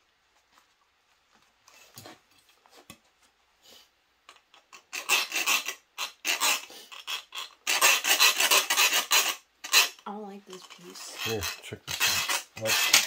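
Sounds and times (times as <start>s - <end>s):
faint handling sounds: 0.0s - 4.8s, 9.8s - 13.0s
file rasping on sheet steel: 4.8s - 10.0s, 10.6s - 13.0s.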